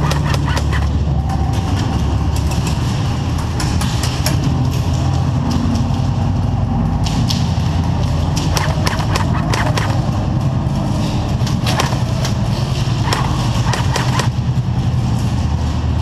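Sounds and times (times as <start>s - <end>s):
airsoft gunfire clicks: 0.0s - 0.9s, 8.4s - 10.1s, 11.7s - 12.2s, 13.0s - 14.3s
pellets striking wood: 0.0s - 1.0s, 8.4s - 10.4s, 11.5s - 14.4s
steady low hum: 0.0s - 16.0s.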